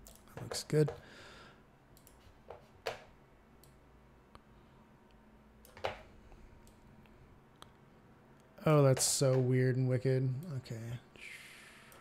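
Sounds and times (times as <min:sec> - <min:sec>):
computer mouse clicks: 0:00.0 - 0:01.0, 0:01.9 - 0:03.8, 0:05.1 - 0:06.0
low room noise: 0:00.0 - 0:12.0.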